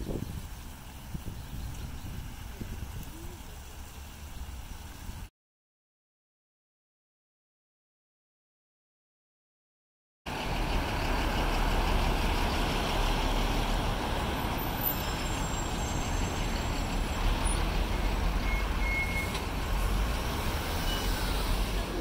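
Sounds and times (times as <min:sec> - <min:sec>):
road traffic rumble: 0:00.0 - 0:05.3, 0:10.3 - 0:22.0.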